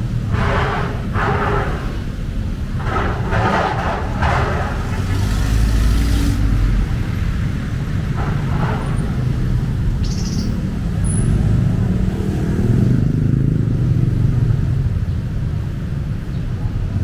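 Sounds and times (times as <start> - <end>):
traffic engines droning: 0.0 - 17.0.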